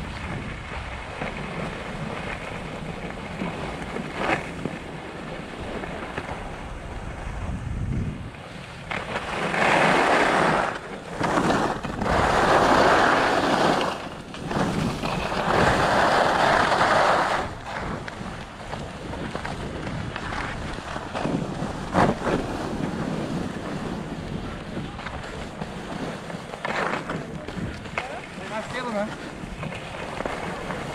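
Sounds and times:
skis scraping over snow: 0.0 - 30.9
wind rumbling on microphone: 0.0 - 30.9.

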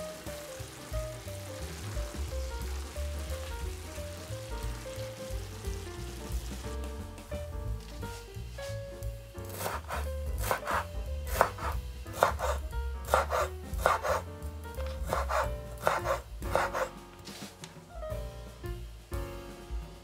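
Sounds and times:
knife chopping on cutting board: 9.5 - 17.0.

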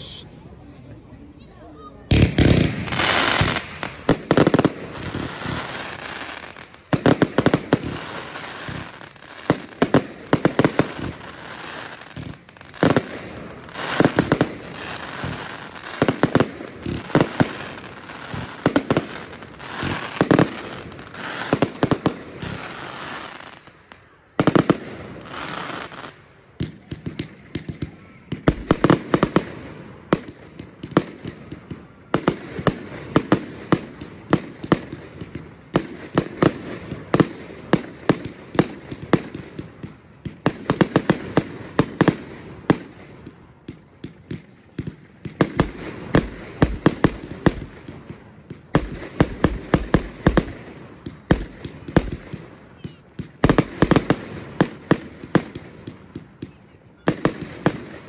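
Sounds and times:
fireworks bangs: 2.0 - 58.0.

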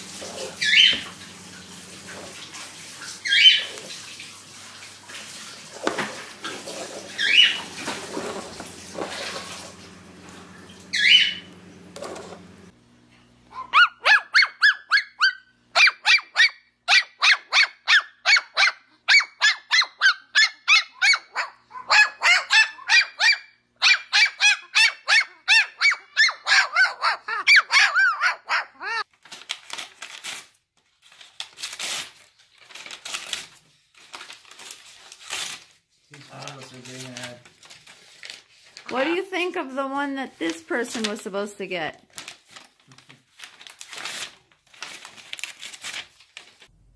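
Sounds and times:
parrot rapid repeated calls: 0.3 - 1.1, 3.2 - 3.8, 7.2 - 7.7, 10.9 - 11.5, 13.5 - 29.0.

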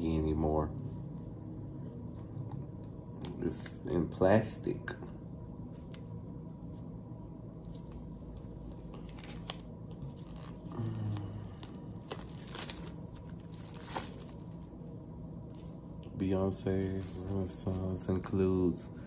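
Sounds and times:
plastic shrink-wrap tearing: 7.6 - 14.7.

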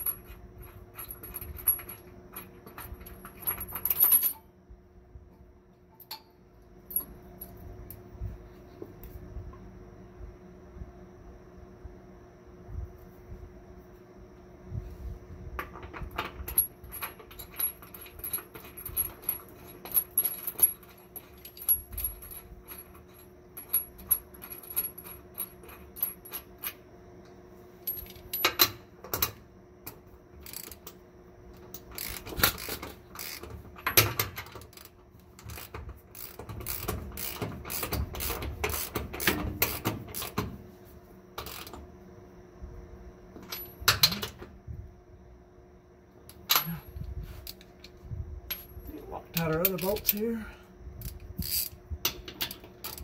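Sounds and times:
ratchet clicking: 30.4 - 31.0, 31.8 - 40.4, 41.4 - 41.8, 51.0 - 53.0.

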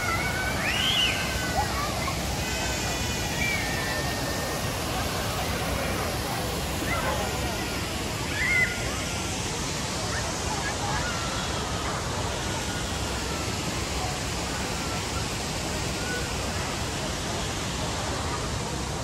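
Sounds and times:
steady outdoor rushing noise: 0.0 - 19.0.

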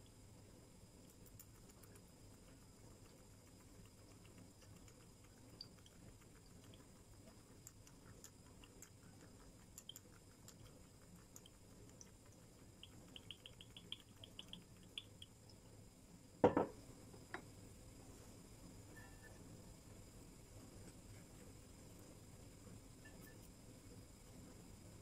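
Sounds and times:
faint ticks: 1.0 - 15.6.

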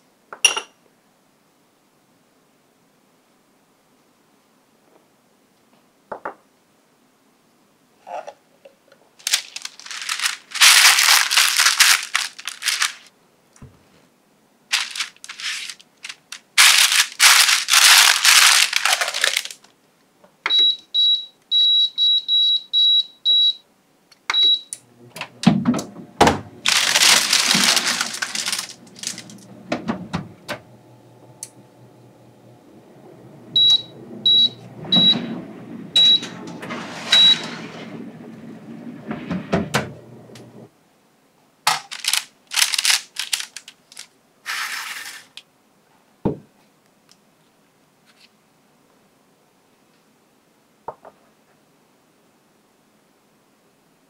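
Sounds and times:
paper crinkling: 9.2 - 13.1, 14.7 - 19.7, 26.6 - 29.6, 41.7 - 45.4
oven fan humming: 24.8 - 40.7.

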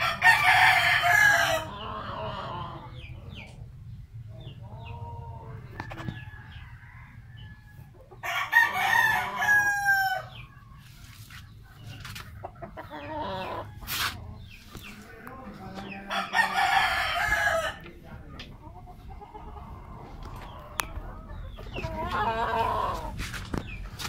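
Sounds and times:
rooster crowing: 0.0 - 2.8, 6.2 - 10.3, 16.0 - 17.8.

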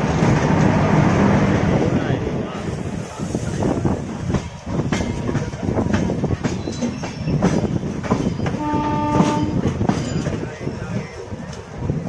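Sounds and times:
train coaches rumbling past: 0.0 - 12.0
train horn: 8.6 - 9.7.

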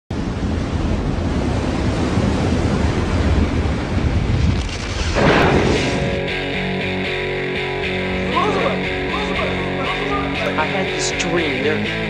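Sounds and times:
ocean wave breaking: 0.1 - 6.4
music notes: 6.0 - 12.0.

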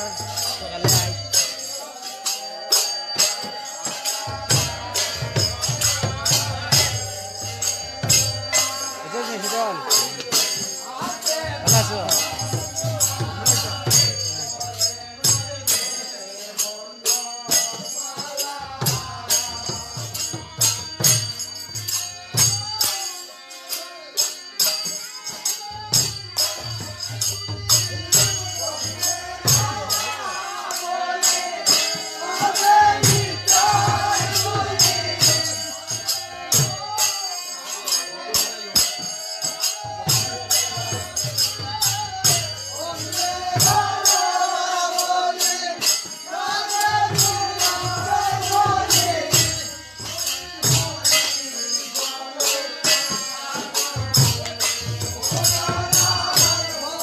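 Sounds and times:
group of voices chanting: 0.0 - 14.6, 28.3 - 41.1
hand cymbals clashing: 0.0 - 57.0.

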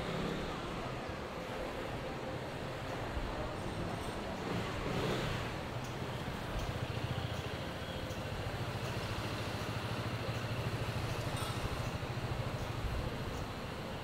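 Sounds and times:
vehicle engine idling: 4.4 - 14.0.

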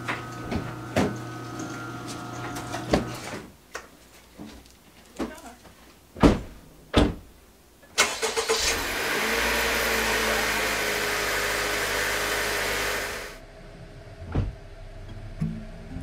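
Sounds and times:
car engine starting and running: 8.0 - 16.0.

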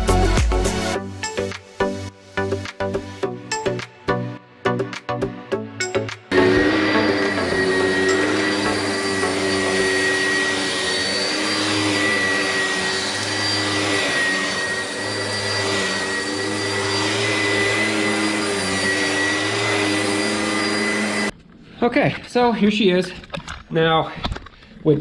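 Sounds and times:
vacuum cleaner running: 0.5 - 3.8, 6.3 - 21.3.

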